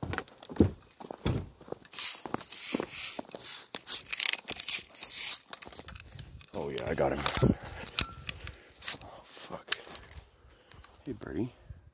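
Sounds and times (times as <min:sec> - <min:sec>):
handling knocks and thumps: 0:00.0 - 0:01.8
rustling and scuffling: 0:00.0 - 0:11.0.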